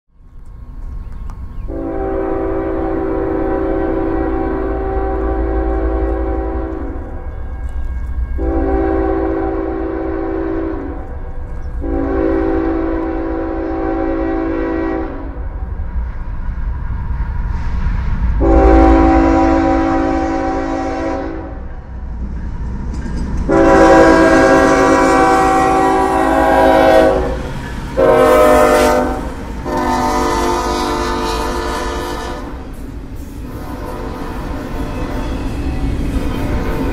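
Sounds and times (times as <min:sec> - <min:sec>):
locomotive air horn blasts: 0:01.7 - 0:07.4, 0:08.4 - 0:11.2, 0:11.8 - 0:15.4, 0:18.4 - 0:21.7, 0:23.5 - 0:32.8, 0:33.4 - 0:35.4.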